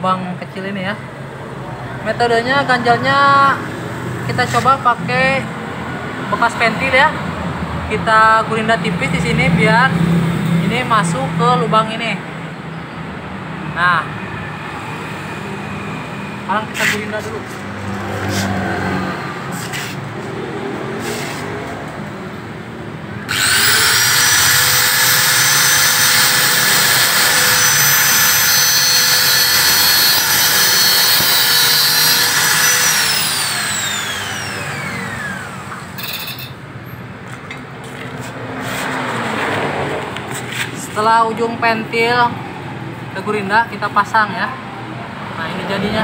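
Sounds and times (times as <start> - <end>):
angle grinder whining: 23.2 - 36.7.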